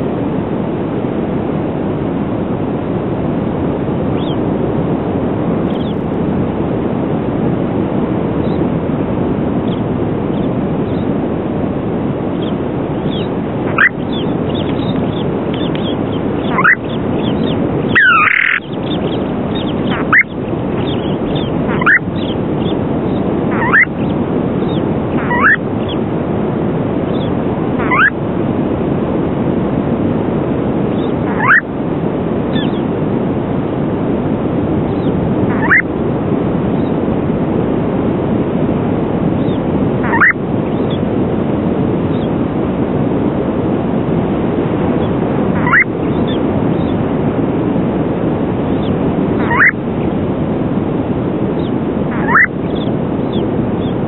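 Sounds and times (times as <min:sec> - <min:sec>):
rushing wind: 0:00.0 - 0:54.0
plover calling: 0:05.7 - 0:06.1, 0:12.3 - 0:26.0, 0:27.1 - 0:28.2, 0:31.0 - 0:31.7, 0:32.5 - 0:32.8, 0:34.9 - 0:35.9, 0:39.4 - 0:41.1, 0:45.0 - 0:47.0, 0:48.7 - 0:49.8, 0:51.6 - 0:54.0.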